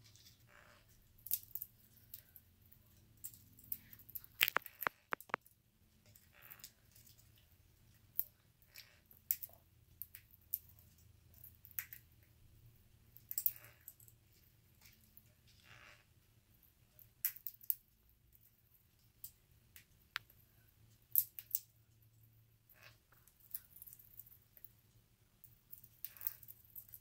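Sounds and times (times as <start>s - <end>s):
bird cracking seeds with beak: 4.2s - 5.4s.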